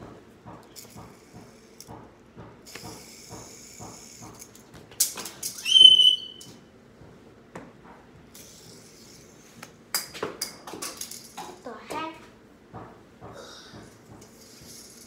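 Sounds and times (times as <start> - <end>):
fidget spinner clicks and knocks: 0.0 - 12.1, 12.7 - 15.0
high-pitched whistle-like squeal: 5.6 - 6.5.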